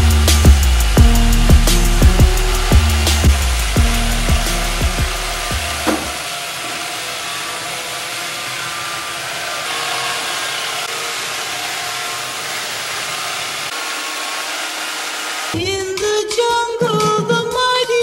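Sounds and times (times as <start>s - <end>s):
robot vacuum whirring: 1.6s - 15.6s.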